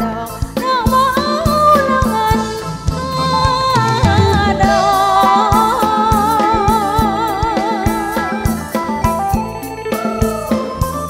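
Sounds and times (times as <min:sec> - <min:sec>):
steady drum beat: 0:00.0 - 0:11.0
dance band music: 0:01.7 - 0:08.9.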